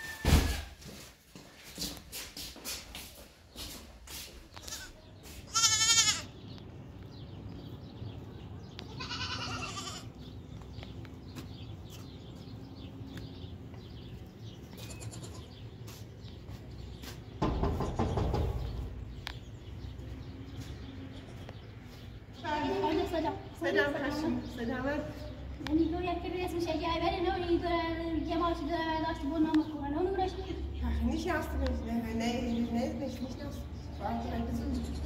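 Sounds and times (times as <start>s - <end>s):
goat bleating: 4.6s - 6.3s, 8.9s - 10.2s, 14.7s - 15.6s.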